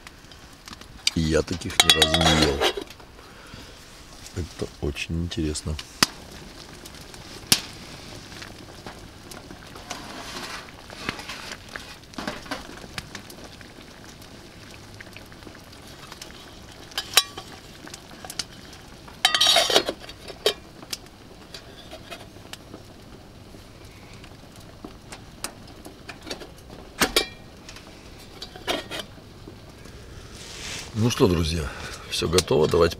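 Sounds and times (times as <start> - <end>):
soup simmering in a pot: 0.0 - 32.9
wood stove crackles: 0.0 - 32.9
metal lid clattering on a pot: 1.7 - 2.9, 17.0 - 17.5, 19.2 - 20.6.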